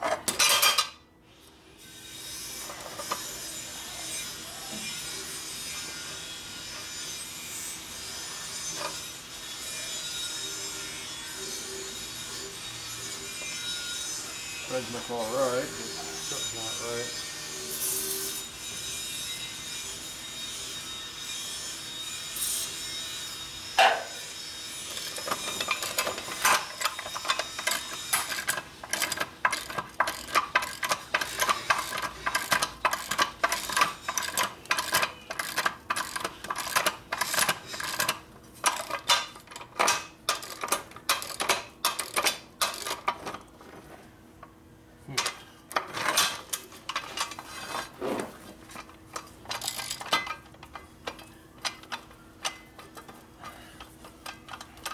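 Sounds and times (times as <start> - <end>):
metal threads rasping and clicking: 24.9 - 43.2.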